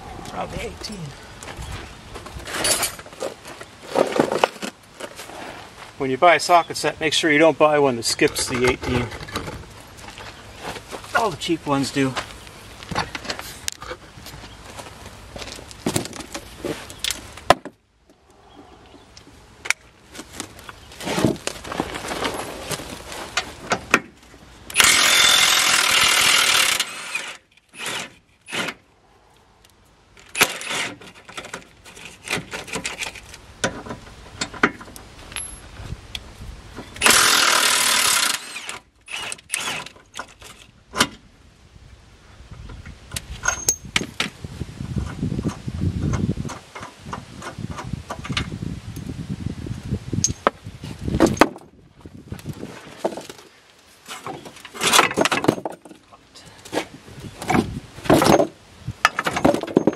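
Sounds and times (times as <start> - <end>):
tools and metal parts clinking: 2.5 - 3.1, 30.2 - 35.7, 43.1 - 44.3, 50.2 - 50.5, 54.1 - 56.1, 57.4 - 59.9.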